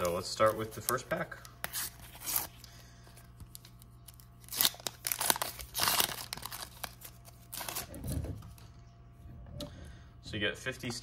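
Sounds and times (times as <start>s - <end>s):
foil wrapper tearing and crinkling: 3.5s - 8.2s.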